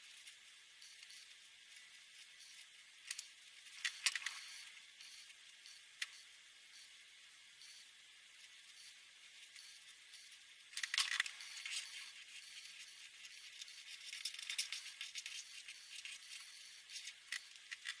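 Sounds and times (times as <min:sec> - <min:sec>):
pens scratching on paper: 0:09.5 - 0:18.0.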